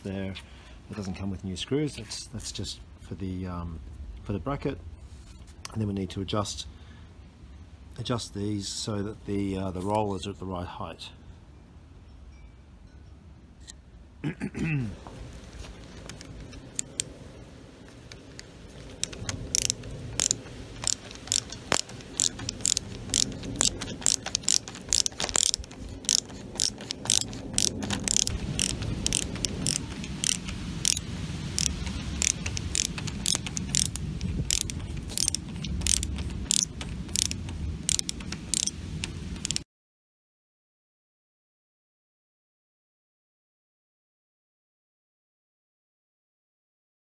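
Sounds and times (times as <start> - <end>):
ratcheting screwdriver clicking: 16.1 - 17.1, 18.4 - 31.0, 31.6 - 39.6.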